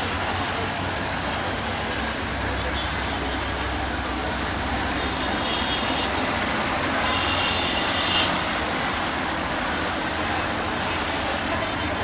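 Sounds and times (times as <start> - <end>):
crowd noise: 0.0 - 12.0
diesel locomotive rumbling: 0.0 - 12.0.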